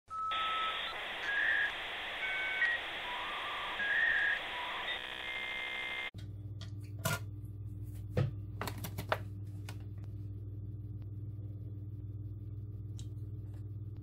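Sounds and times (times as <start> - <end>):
whistle-like electronic tones: 0.1 - 6.1
buzzy steady tone: 0.3 - 6.1.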